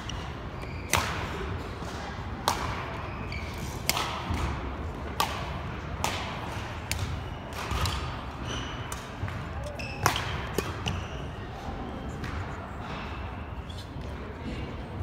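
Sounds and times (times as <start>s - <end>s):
racket striking shuttlecock: 2.4s - 3.0s, 3.7s - 11.2s.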